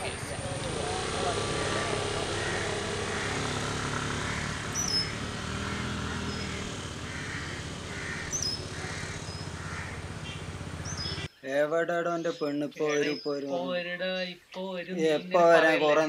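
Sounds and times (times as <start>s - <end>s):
scooter engine running: 0.0s - 11.3s
crow cawing: 0.6s - 11.3s
small bird chirping: 3.2s - 11.3s.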